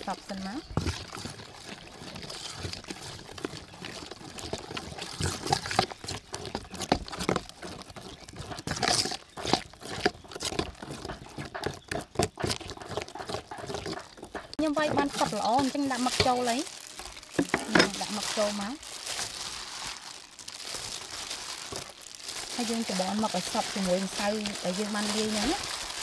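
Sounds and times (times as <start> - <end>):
spoon scraping metal bowl: 17.3 - 18.2.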